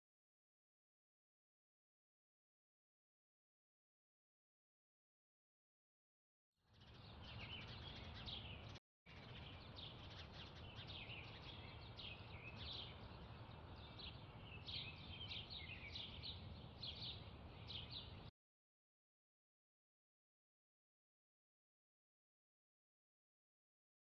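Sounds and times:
small birds chirping and trilling: 0:06.7 - 0:18.3
low steady outdoor rumble: 0:06.8 - 0:18.3.

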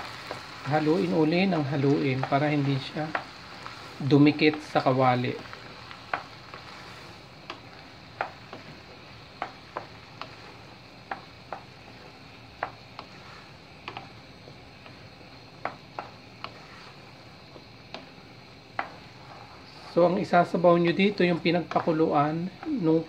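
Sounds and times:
simmering hiss: 0:00.0 - 0:23.0
wooden spoon knocking against pan: 0:05.4 - 0:06.4, 0:07.4 - 0:16.8, 0:17.5 - 0:19.1.

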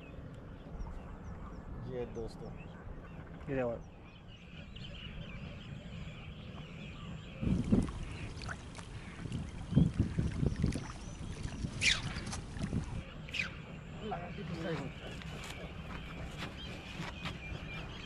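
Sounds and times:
water splashing and sloshing: 0:06.4 - 0:18.0.

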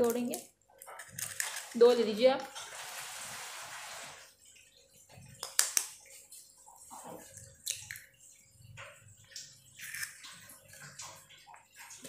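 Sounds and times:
egg shell tapping and cracking: 0:00.0 - 0:01.6, 0:05.4 - 0:06.0.

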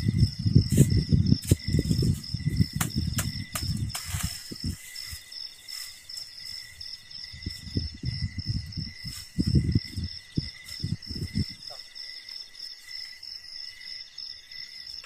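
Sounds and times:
footsteps on dry leaves and twigs: 0:00.0 - 0:11.6
insects chorus: 0:00.0 - 0:15.0
twigs snapping: 0:01.5 - 0:04.6.

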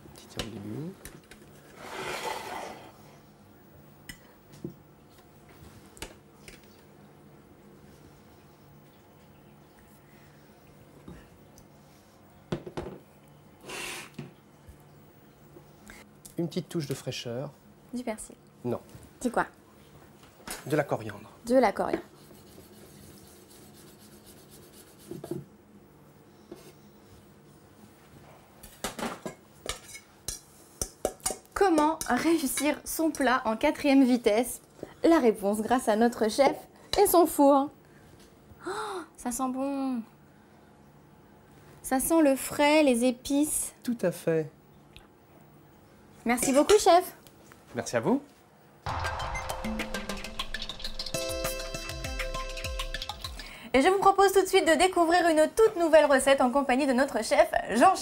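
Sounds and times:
cutlery scraping on plate: 0:29.7 - 0:31.4.

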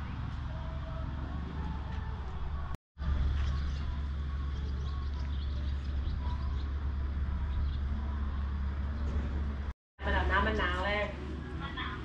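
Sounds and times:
motorcycle engine rumble: 0:00.0 - 0:09.7
bird chirps: 0:03.3 - 0:06.8.

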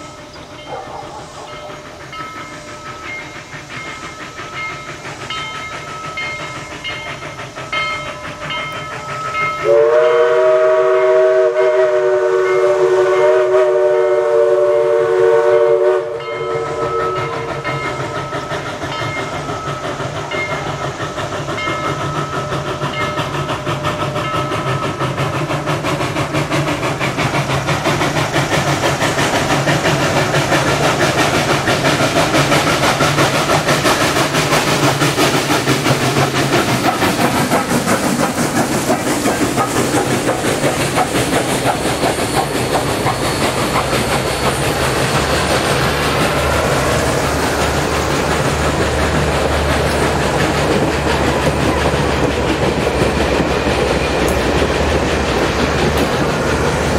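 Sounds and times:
steam locomotive exhaust beats: 0:00.0 - 0:56.9
steam whistle blast: 0:09.5 - 0:17.6.

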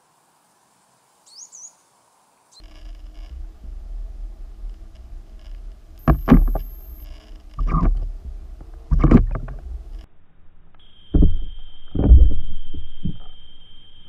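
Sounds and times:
steady low hum: 0:02.6 - 0:14.0
thin high whine: 0:02.6 - 0:14.0
gurgling water rushes: 0:03.2 - 0:10.1
muffled underwater thumps: 0:05.0 - 0:10.0, 0:11.2 - 0:13.3.

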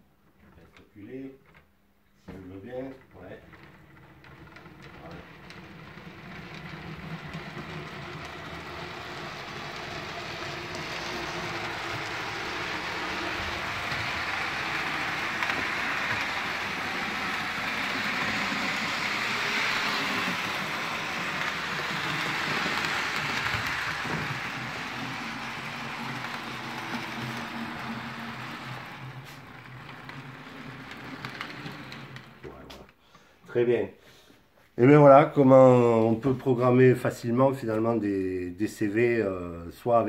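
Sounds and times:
model train whirring on rails: 0:03.5 - 0:32.6.

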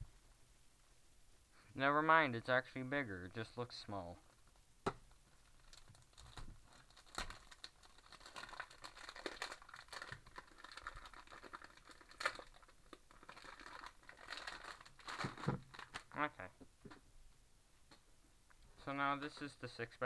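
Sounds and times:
plastic wrap crinkling and tearing: 0:05.3 - 0:16.2.

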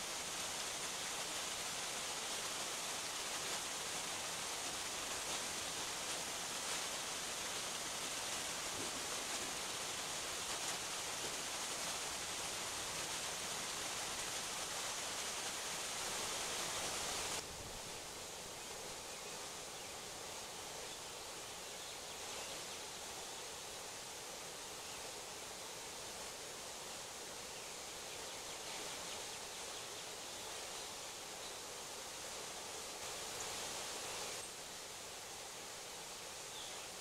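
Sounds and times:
water pouring over a dam: 0:00.0 - 0:17.4.

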